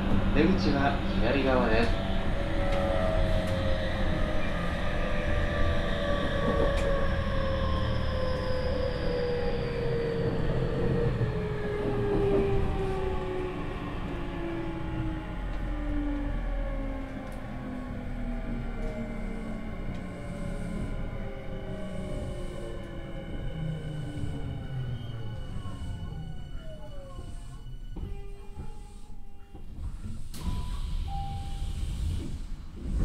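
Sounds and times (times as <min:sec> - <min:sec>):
wheels rumbling on rail: 0:00.0 - 0:33.0
train motors whining: 0:10.3 - 0:33.0.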